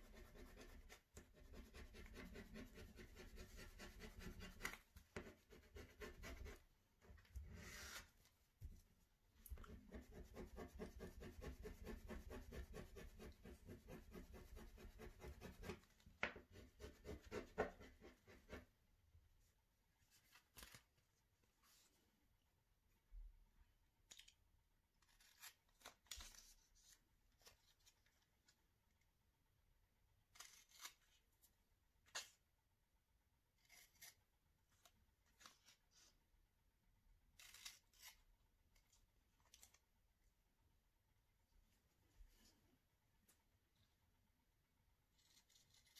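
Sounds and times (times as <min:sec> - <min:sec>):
scissors cutting paper: 0:00.0 - 0:06.6, 0:25.0 - 0:28.0, 0:30.3 - 0:31.2, 0:33.6 - 0:34.2, 0:37.4 - 0:39.9, 0:45.1 - 0:45.9.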